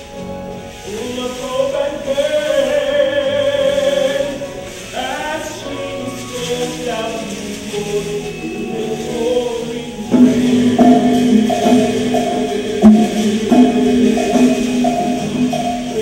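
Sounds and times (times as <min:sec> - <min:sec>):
musical accompaniment: 0:00.0 - 0:16.0
singers holding sustained notes: 0:00.0 - 0:16.0
sharp percussion hits: 0:09.7 - 0:16.0.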